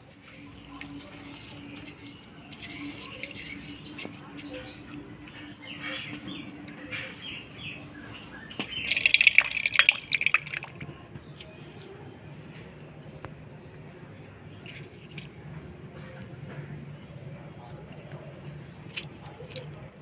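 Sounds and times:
water pouring and dripping: 0:00.0 - 0:05.1, 0:08.6 - 0:11.0, 0:14.6 - 0:15.4
hands swishing seeds in water: 0:00.1 - 0:04.0, 0:08.9 - 0:10.8.

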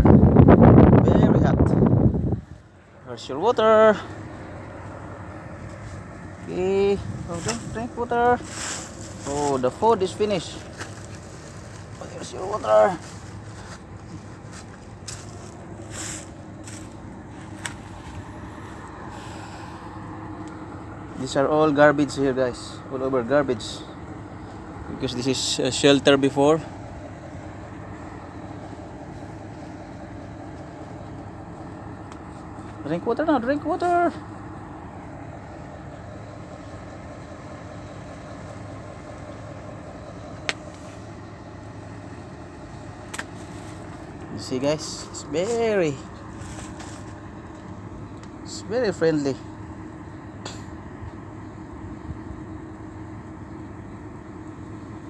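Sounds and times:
low hum: 0:00.0 - 0:55.0
low outdoor rumble: 0:00.0 - 0:55.0
rustles and scrapes: 0:05.6 - 0:06.2, 0:07.1 - 0:09.8, 0:10.4 - 0:18.4, 0:43.2 - 0:44.3, 0:46.3 - 0:47.2.

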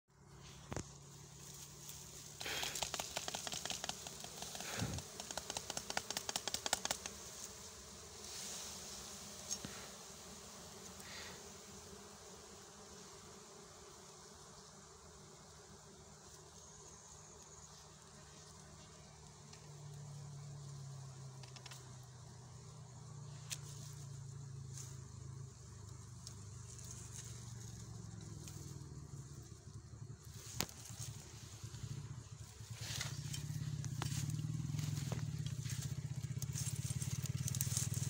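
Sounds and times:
honeybees buzzing: 0:00.1 - 0:38.0
rapid clicking and crackling: 0:02.4 - 0:07.2.

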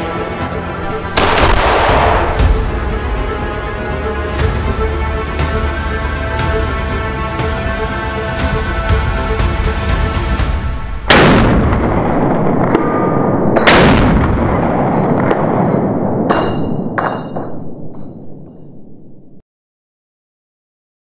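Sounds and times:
rifle shots with echo: 0:01.2 - 0:02.6.

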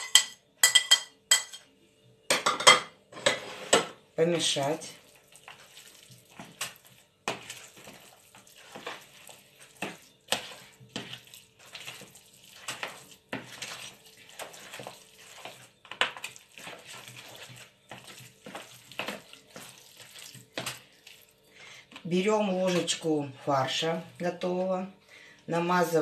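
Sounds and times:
spoon scraping plastic bowl: 0:06.4 - 0:21.0.

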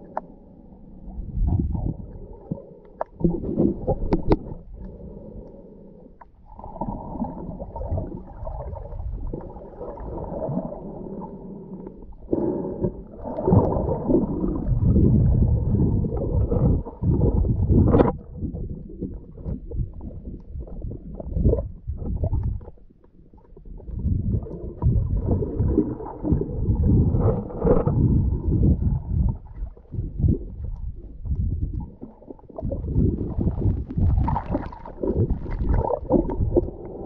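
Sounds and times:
underwater rumbling and gurgling: 0:00.0 - 0:37.0.

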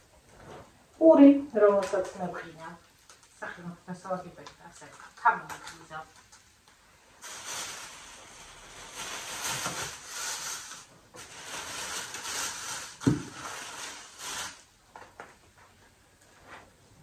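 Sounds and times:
plastic bags rustling: 0:04.8 - 0:14.9.

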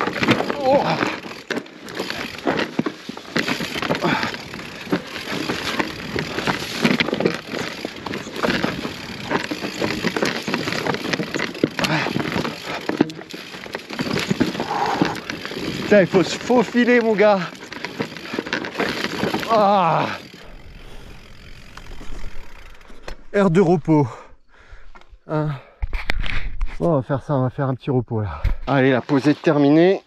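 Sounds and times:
bike knocking on rocks: 0:00.0 - 0:20.4
tyres crunching on stones: 0:00.0 - 0:20.6.

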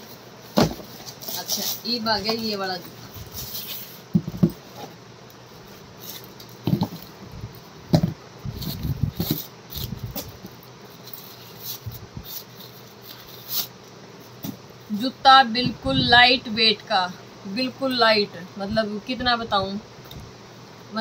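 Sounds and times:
shoes knocking on wooden table: 0:04.1 - 0:04.6, 0:07.9 - 0:08.2.

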